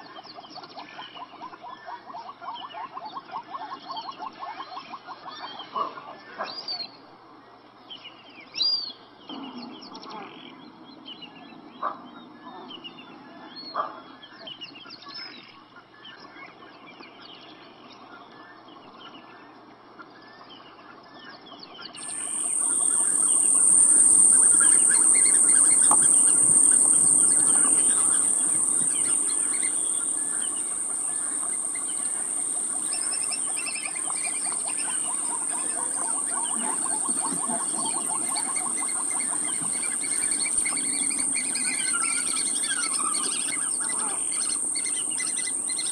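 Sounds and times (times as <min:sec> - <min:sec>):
birds chirping: 0:22.0 - 0:45.9
high-pitched insect drone: 0:22.0 - 0:45.9.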